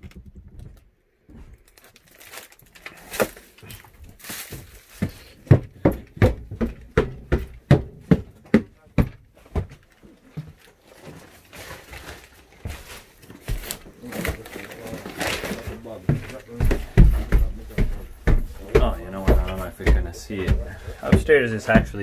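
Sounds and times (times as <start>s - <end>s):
shuffling and light knocks: 3.3s - 22.0s
footsteps on wooden stairs: 4.3s - 11.3s, 11.9s - 14.6s, 15.5s - 22.0s.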